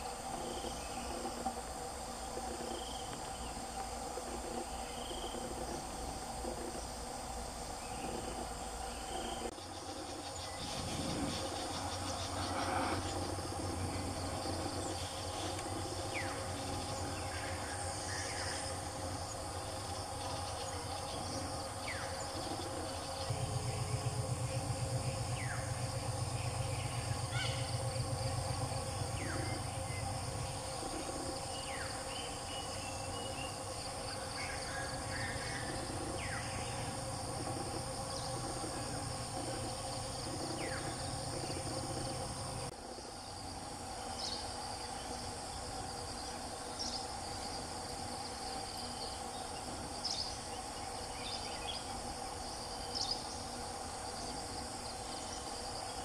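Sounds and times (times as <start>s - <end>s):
insects droning: 0.0s - 56.0s
low pulsing hum: 0.0s - 56.0s
small birds calling: 24.5s - 42.7s.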